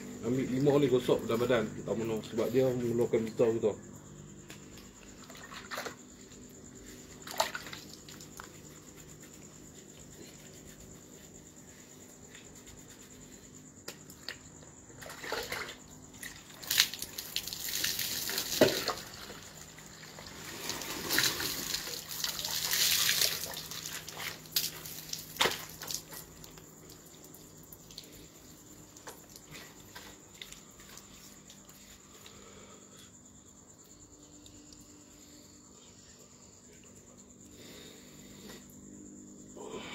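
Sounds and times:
water poured and splashing: 5.2s - 6.0s, 7.2s - 8.4s, 15.0s - 28.2s.

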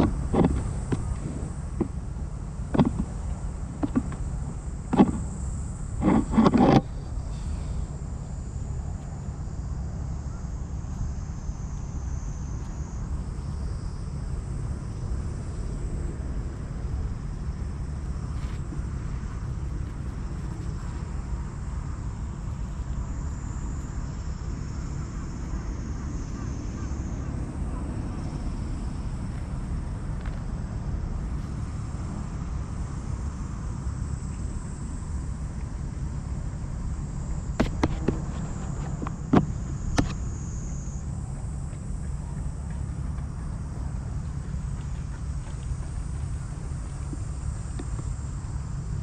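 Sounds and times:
faint insect buzz: 0.0s - 49.0s
wind rumble on microphone: 0.0s - 49.0s.

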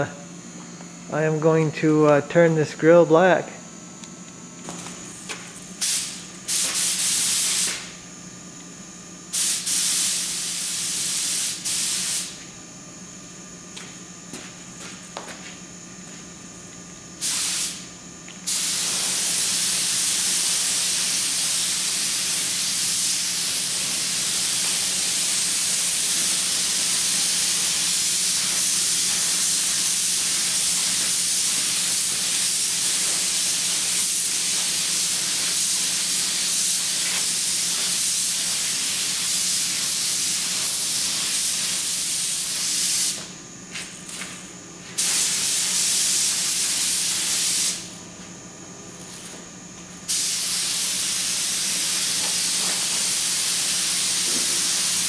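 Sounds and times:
paint spray gun hissing: 5.8s - 7.9s, 9.3s - 12.4s, 17.2s - 43.3s, 45.0s - 47.9s, 50.1s - 55.0s.

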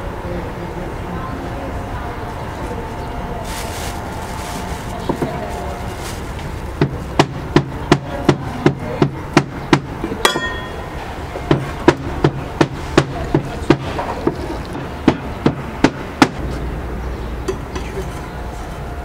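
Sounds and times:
sharp knocking blows: 6.8s - 10.6s, 11.4s - 16.5s
ringing metal clink: 10.2s - 10.9s.

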